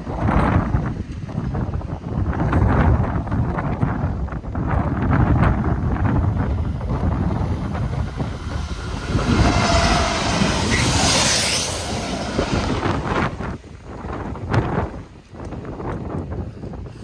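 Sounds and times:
wind buffeting microphone: 0.0 - 17.0
diesel locomotive passing: 5.5 - 15.2.

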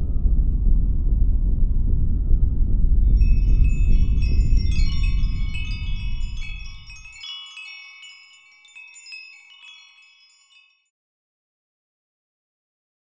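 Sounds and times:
deep rumble: 0.0 - 7.2
tinkling wind chimes: 3.1 - 11.0.

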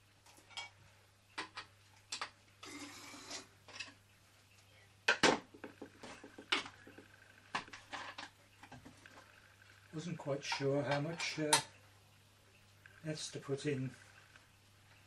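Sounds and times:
objects knocking on wooden bench: 5.1 - 9.0.

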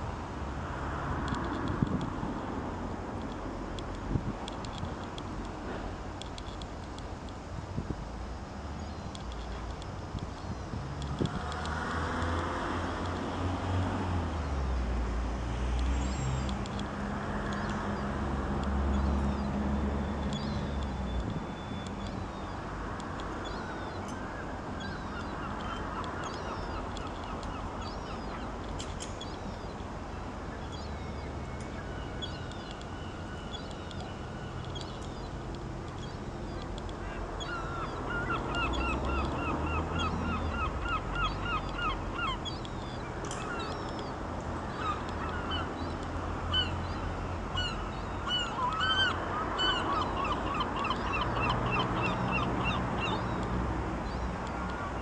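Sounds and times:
many birds calling: 36.0 - 53.4.

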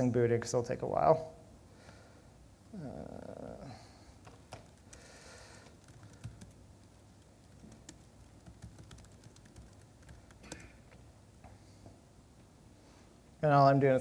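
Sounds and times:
laptop keyboard keystrokes: 4.2 - 11.0.

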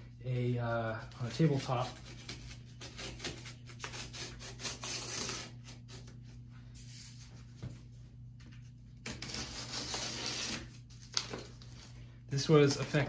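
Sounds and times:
steady low hum: 0.0 - 13.0
blade slicing packing tape: 1.7 - 6.0, 9.0 - 11.4.

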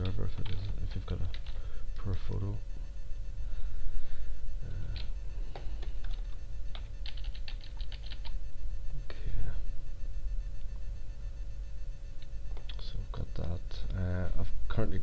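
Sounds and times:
computer keyboard typing: 0.0 - 1.6, 4.9 - 8.4
steady hum: 0.0 - 15.0.

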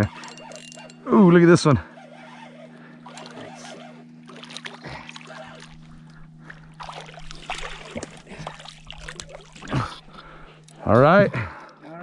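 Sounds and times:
steady low hum: 0.0 - 12.0
fish splashing at water surface: 4.2 - 10.0.

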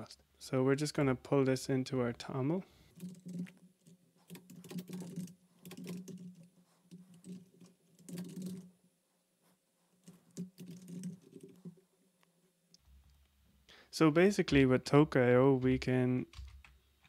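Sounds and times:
typing on computer keyboard: 3.0 - 8.7, 10.0 - 11.7.

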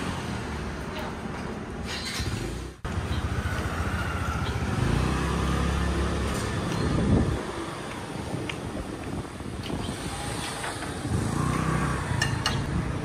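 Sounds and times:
vehicle engine revving: 1.9 - 7.4, 9.7 - 13.0.

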